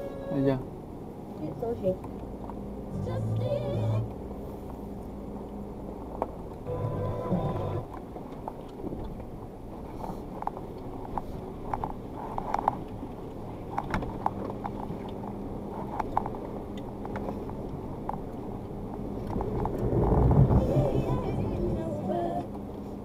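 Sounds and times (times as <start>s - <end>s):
vehicle engine running at low speed: 0.4s - 23.0s.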